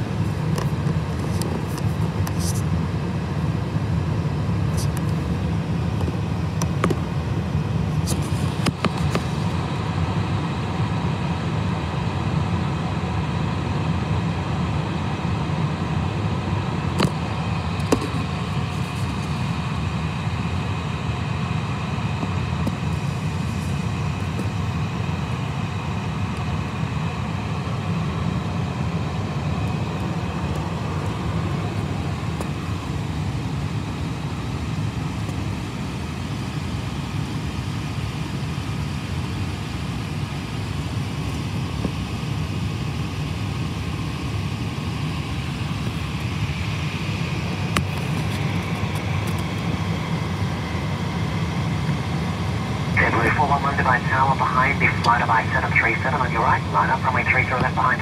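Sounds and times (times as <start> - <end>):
airliner cabin rumble: 52.8 - 58.0.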